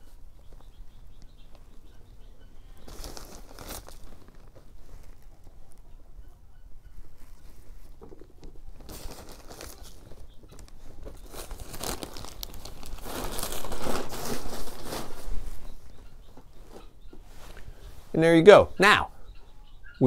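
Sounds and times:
packaging crinkling and rustling: 2.8 - 5.8, 7.2 - 16.8.

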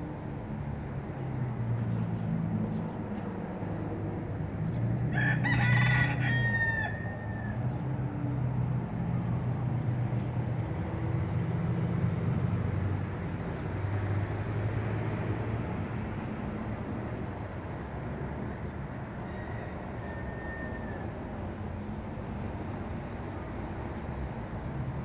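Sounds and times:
rooster crowing: 5.1 - 7.8, 19.2 - 21.4.

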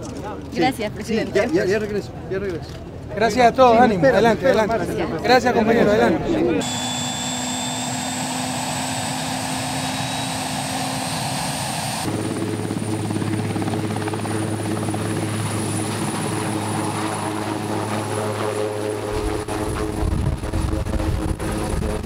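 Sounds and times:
helicopter turbine whine: 4.2 - 22.0
helicopter rotor beating: 6.6 - 22.0.

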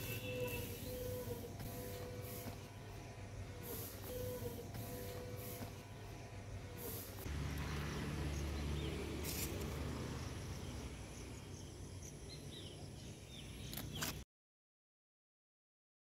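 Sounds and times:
faint bird chirps: 0.0 - 1.5.

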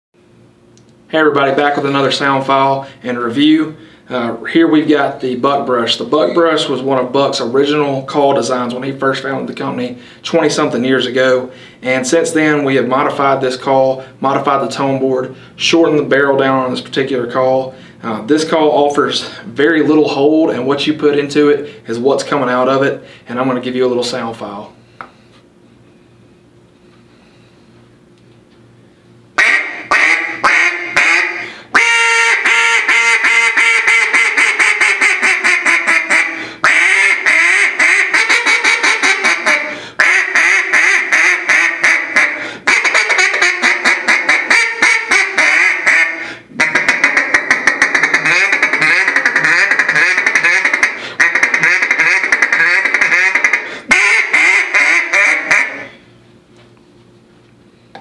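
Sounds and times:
duck call quacking: 29.4 - 56.0.

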